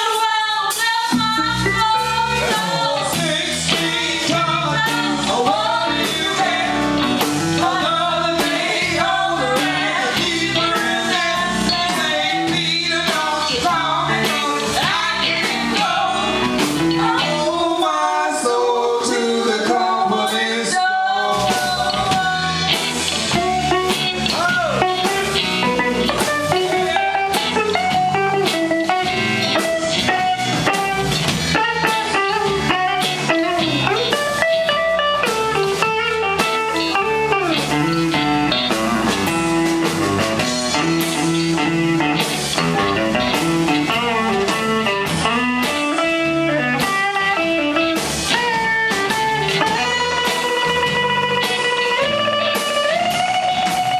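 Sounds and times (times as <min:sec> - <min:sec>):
electric guitar: 0:00.0 - 0:53.9
live blues band playing: 0:00.0 - 0:53.9.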